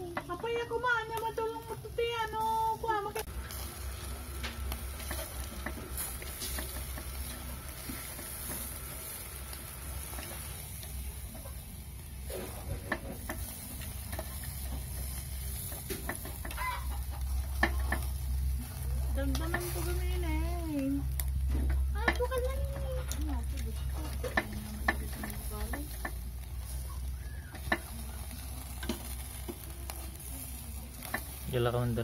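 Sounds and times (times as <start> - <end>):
chicken sizzling on a grill: 0.0 - 32.0
marinade dripping onto coals: 0.0 - 32.0
steady low rumble: 0.0 - 32.0
chickens clucking: 10.1 - 18.8.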